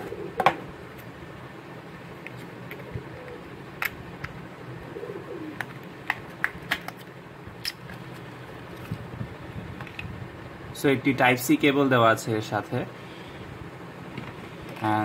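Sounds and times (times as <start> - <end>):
faint bird cooing: 0.0 - 0.8, 2.8 - 3.7, 4.6 - 5.7.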